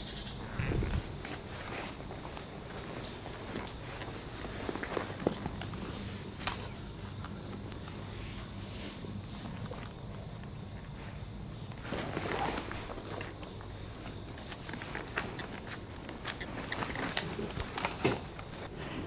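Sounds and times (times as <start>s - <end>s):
insects droning: 0.0s - 19.0s
footsteps on gravel and leaves: 0.6s - 7.1s.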